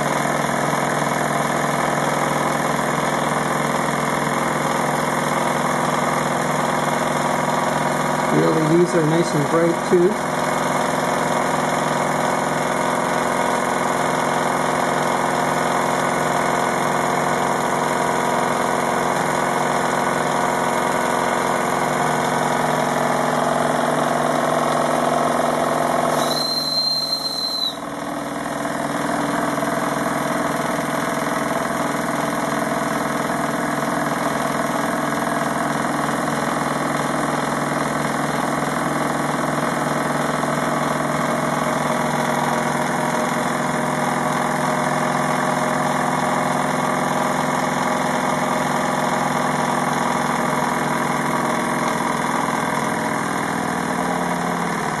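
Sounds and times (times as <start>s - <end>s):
high steam whistle: 26.2s - 27.9s.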